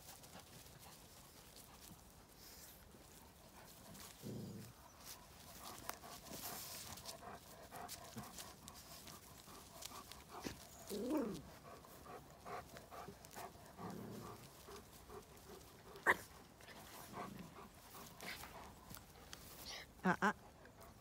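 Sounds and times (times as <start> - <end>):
rustles and scuffs: 0.0 - 20.0
dogs panting and snuffling: 0.0 - 21.0
dog yelp: 16.0 - 16.3.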